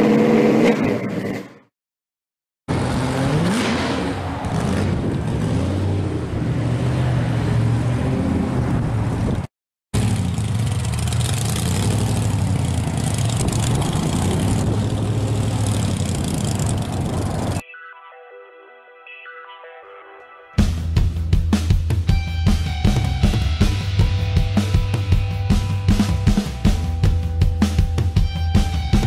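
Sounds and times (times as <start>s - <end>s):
loud car engine revving: 0.0s - 1.0s, 2.7s - 9.0s, 10.0s - 17.6s.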